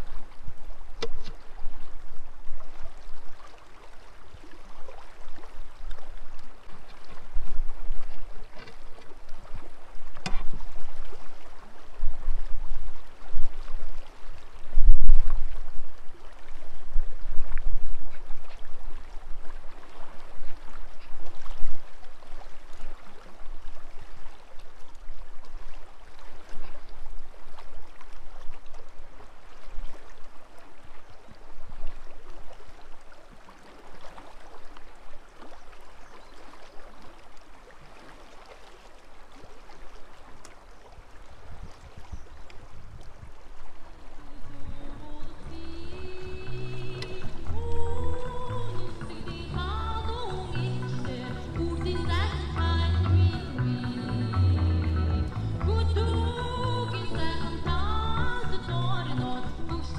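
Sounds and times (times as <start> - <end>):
river water rushing: 0.0 - 59.9
wind rumbling on microphone: 4.3 - 24.4, 40.9 - 52.8.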